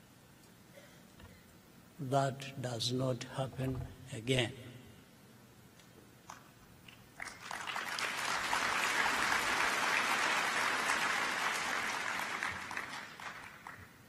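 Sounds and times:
audience applauding: 7.2 - 14.0.

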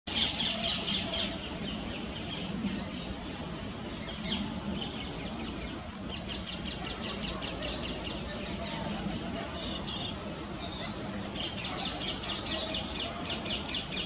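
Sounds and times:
fledglings begging calls: 3.8 - 14.0.

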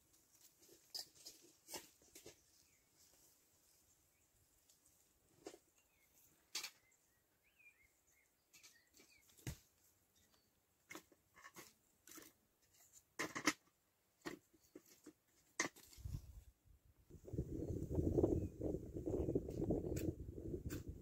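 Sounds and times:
faint bird chirp: 5.6 - 10.6.

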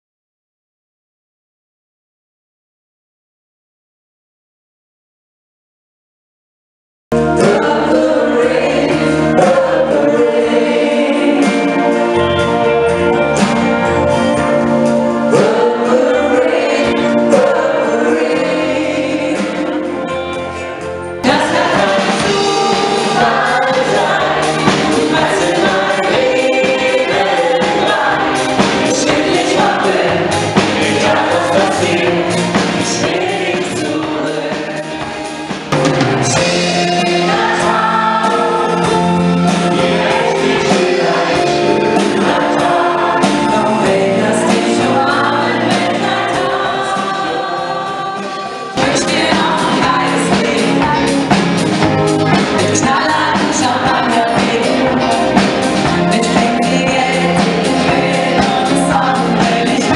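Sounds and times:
live band playing: 7.1 - 59.9
crowd singing along: 7.2 - 59.9
woman singing lead: 36.3 - 51.5, 52.3 - 59.9.

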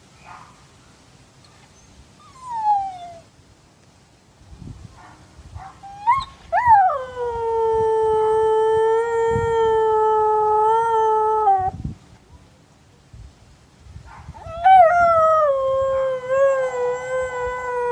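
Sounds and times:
dog howling: 14.4 - 17.9.

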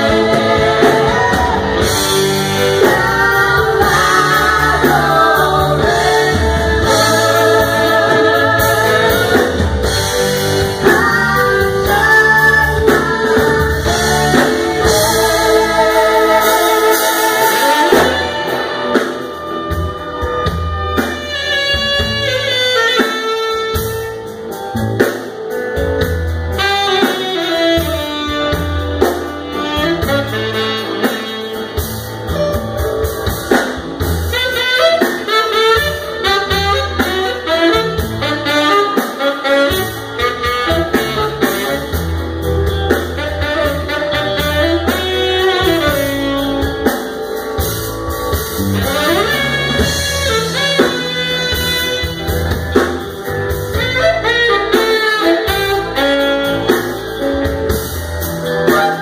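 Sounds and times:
drums: 0.0 - 59.0
guitar: 0.0 - 59.0
keyboard: 0.0 - 59.0.

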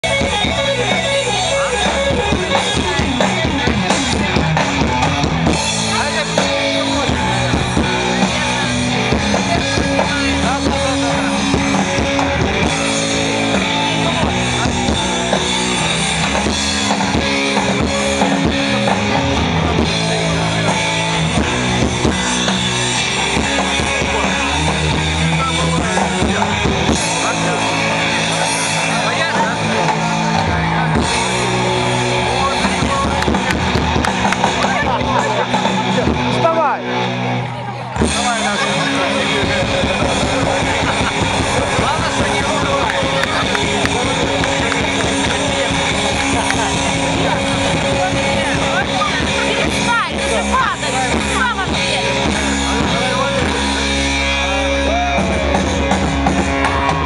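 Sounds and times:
loud dance music: 38.2 - 53.1.

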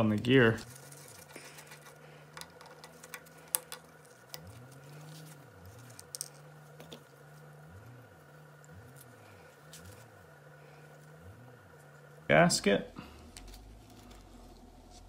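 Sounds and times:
faint low hum: 0.0 - 15.0
metal parts clicking and tapping: 1.0 - 5.2.

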